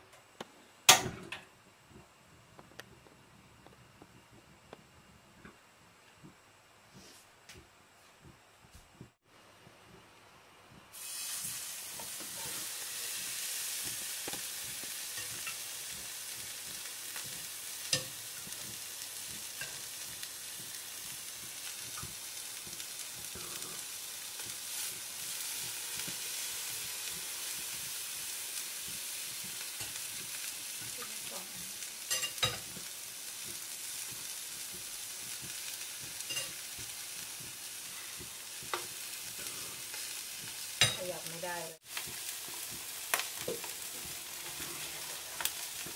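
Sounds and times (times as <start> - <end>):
fish sizzling in a pan: 10.9 - 45.9.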